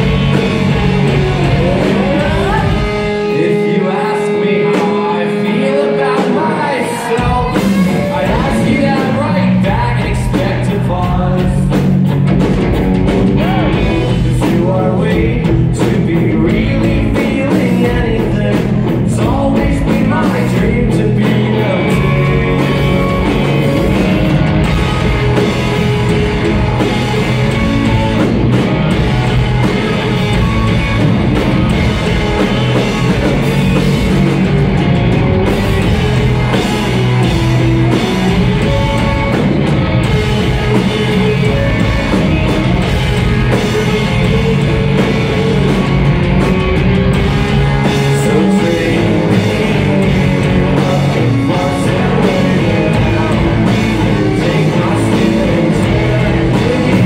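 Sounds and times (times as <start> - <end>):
bass guitar: 0.0 - 57.0
drum kit: 0.0 - 57.0
electric guitars: 0.0 - 57.0.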